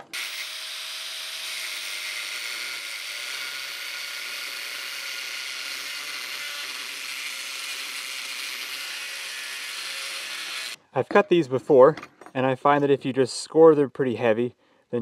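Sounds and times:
angle grinder cutting metal: 0.0 - 10.8.

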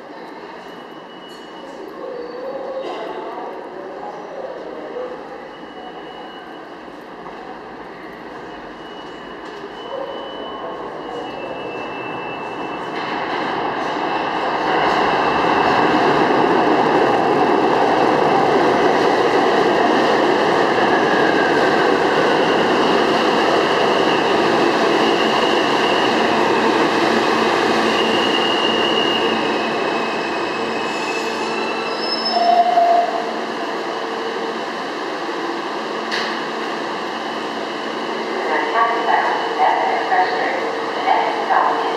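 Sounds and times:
subway train rumbling and clattering: 0.0 - 41.9
high wheel squeals: 27.8 - 33.2.

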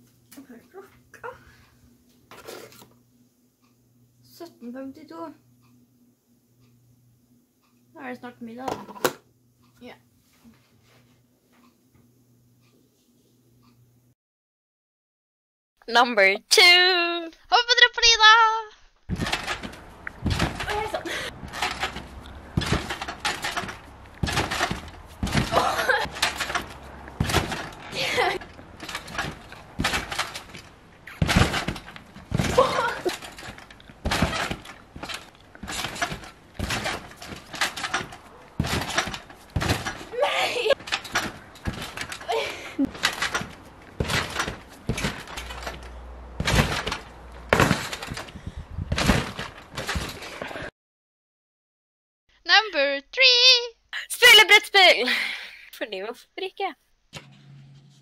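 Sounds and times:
trampoline mat thuds: 19.1 - 50.7.

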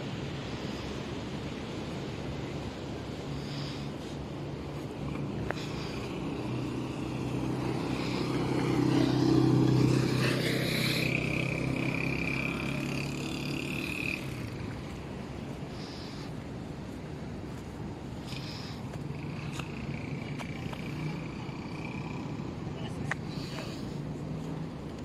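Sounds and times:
motor vehicle passing: 1.9 - 25.0.

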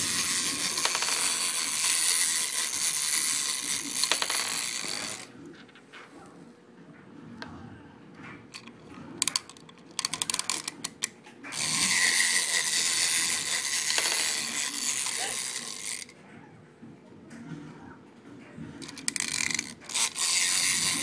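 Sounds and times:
toy mechanism ratcheting clicks: 0.0 - 5.3, 8.5 - 16.2, 18.8 - 21.0
toy mechanical whirring: 0.0 - 5.7, 8.5 - 16.2, 18.8 - 21.0.

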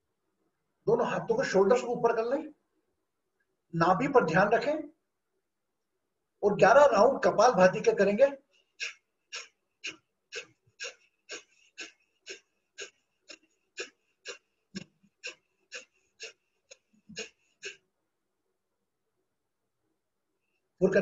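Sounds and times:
forceful nasal exhalations: 8.6 - 17.9.

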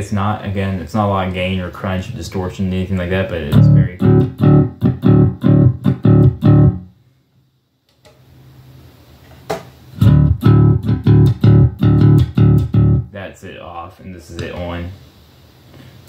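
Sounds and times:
electric bass riff: 3.5 - 6.9, 10.0 - 13.1
amp hiss: 13.1 - 16.0.

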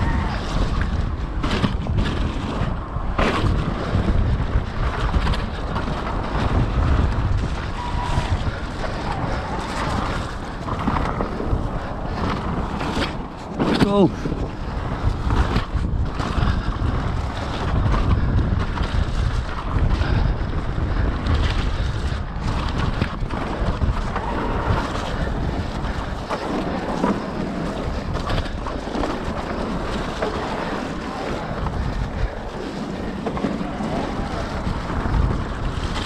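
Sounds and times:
bike rattling and clattering: 0.0 - 36.0
bike tyres rumbling on rough trail: 0.0 - 36.0
wind buffeting microphone: 0.0 - 36.0.

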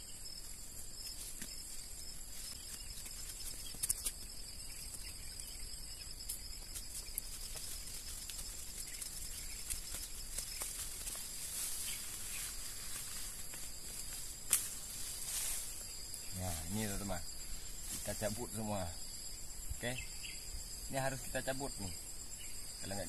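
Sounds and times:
high-pitched insect chorus: 0.0 - 23.0
weeds rustling and snapping: 2.3 - 5.1, 6.2 - 16.8.

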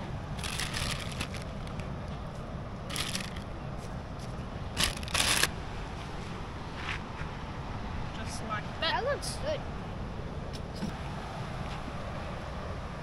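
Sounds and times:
plastic packaging crinkling: 0.4 - 1.8, 2.9 - 3.4, 4.8 - 5.5.

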